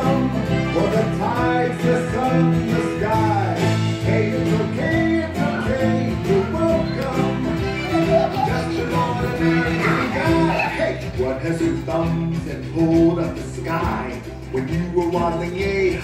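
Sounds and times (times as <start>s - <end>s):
song with guitar and bass: 0.0s - 16.0s.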